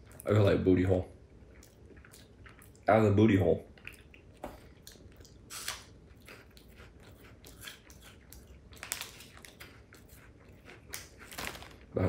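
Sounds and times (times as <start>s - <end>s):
crunchy snack chewing: 3.8s - 11.9s.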